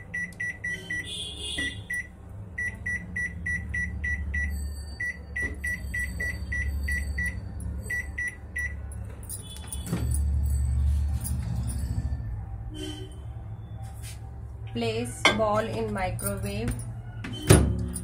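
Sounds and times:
microwave keypad beeping: 0.0 - 8.8.

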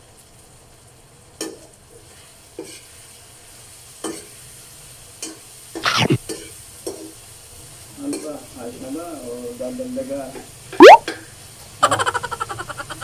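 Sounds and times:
meat sizzling in a frying pan: 0.0 - 5.8, 6.4 - 10.7.

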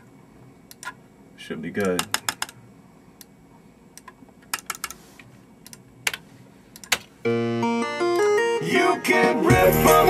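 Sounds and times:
computer keyboard clicks: 1.8 - 2.6, 4.0 - 5.0, 6.8 - 7.0
computer mouse clicks: 4.0 - 5.0, 5.6 - 6.2
music over studio speakers: 7.2 - 10.0.

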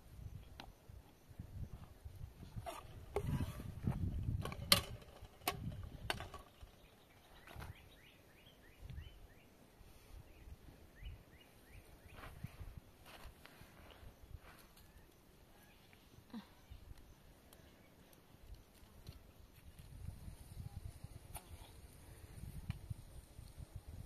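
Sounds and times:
small bird chirping: 6.4 - 9.5.

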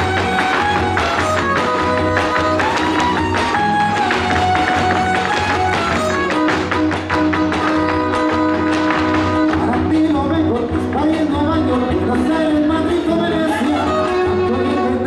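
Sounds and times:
violin holding long notes: 0.0 - 9.8
shoes stamping on stage floor: 0.0 - 11.7
strummed guitars: 0.0 - 15.0.

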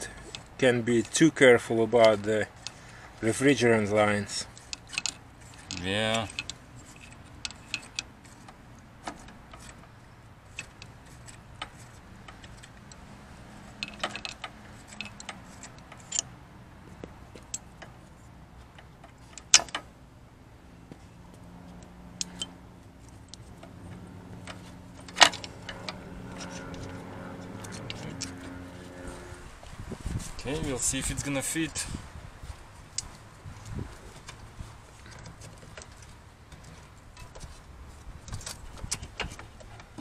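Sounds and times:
metallic clicks of hand tools: 13.7 - 16.3, 22.2 - 22.6.

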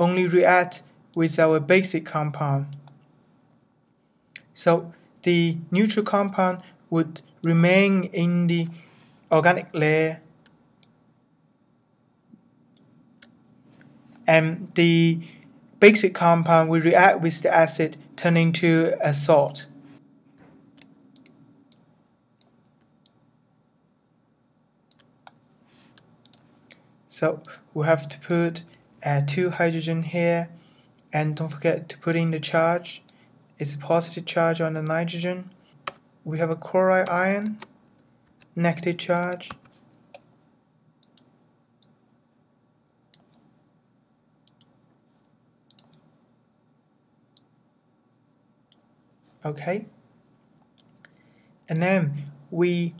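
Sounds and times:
computer mouse clicks: 2.7 - 3.0, 20.4 - 23.2, 24.9 - 26.6, 35.8 - 36.0, 41.0 - 42.0, 43.1 - 43.5, 44.4 - 44.8, 45.7 - 46.1, 50.5 - 51.8
computer mouse and keyboard clicks: 24.9 - 26.6, 37.0 - 40.3, 45.7 - 46.1.

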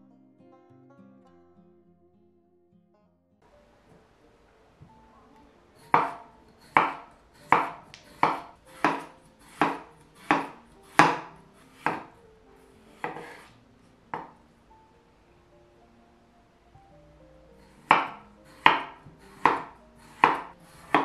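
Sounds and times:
knife slicing potatoes on board: 5.8 - 12.2, 12.8 - 13.6, 17.6 - 21.0.

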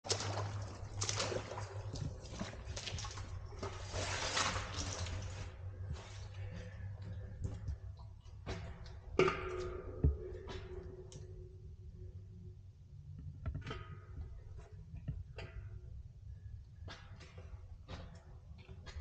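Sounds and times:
footsteps splashing in water: 0.0 - 9.4.

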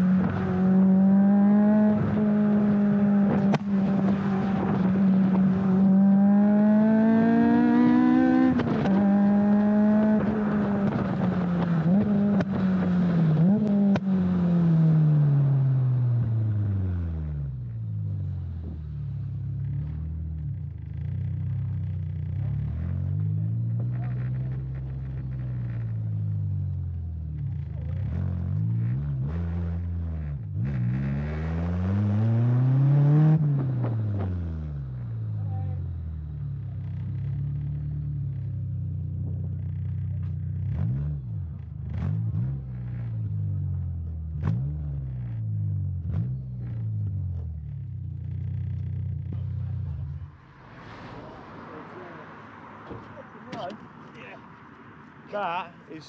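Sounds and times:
car engine and exhaust: 0.0 - 56.0.

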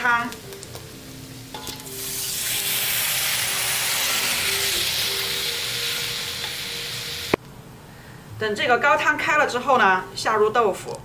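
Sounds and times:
stock sizzling in hot wok: 0.0 - 7.4.

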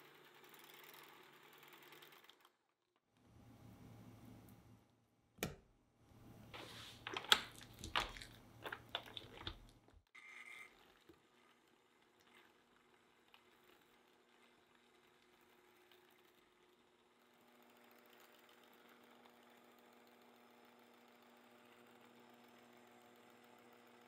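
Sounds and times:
electric mixer motor hum: 12.5 - 24.0.

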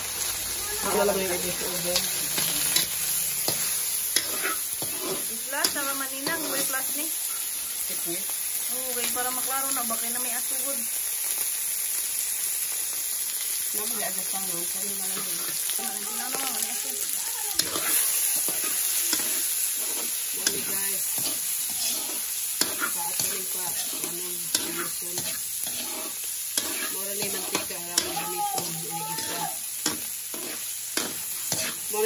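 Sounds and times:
meat sizzling in a wok: 0.0 - 32.0
metal ladle scraping and clinking: 17.6 - 28.2.

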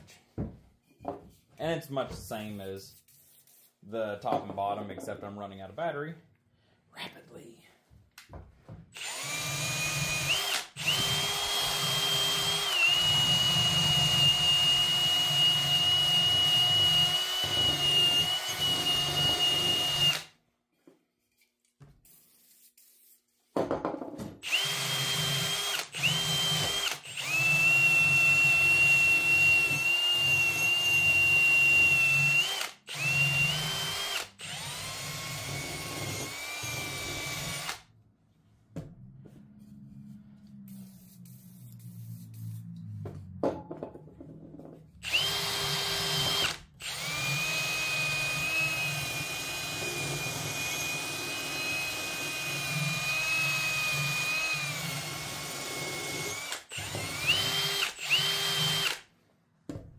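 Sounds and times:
cordless drill motor whine: 9.0 - 20.3, 24.4 - 37.8, 45.0 - 59.0.

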